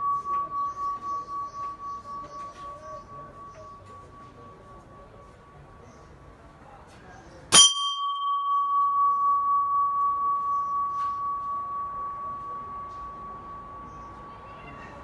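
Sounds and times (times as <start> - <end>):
metal target ringing: 7.5 - 14.3.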